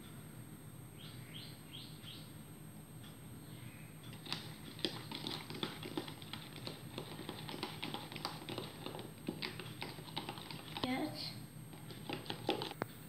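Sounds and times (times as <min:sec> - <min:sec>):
spoon scraping plastic jug: 0:04.1 - 0:12.8.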